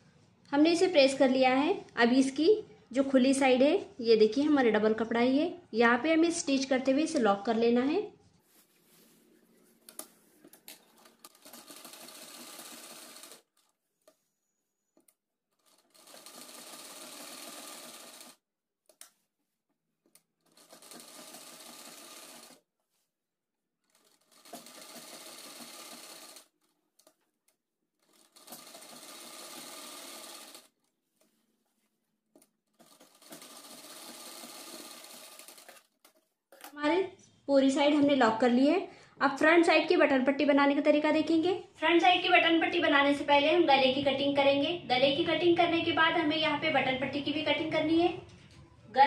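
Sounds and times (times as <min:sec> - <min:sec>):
sewing machine stitching: 0:10.6 - 0:14.2, 0:15.0 - 0:18.4, 0:20.2 - 0:22.6, 0:23.8 - 0:27.2, 0:28.0 - 0:30.8, 0:32.4 - 0:36.7.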